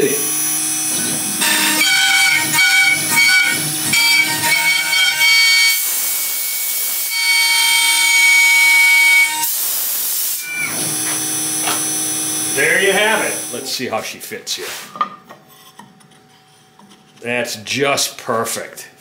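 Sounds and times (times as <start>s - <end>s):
router spindle whining: 0.0s - 9.5s, 10.3s - 13.7s
router bit cutting wood: 0.0s - 13.7s.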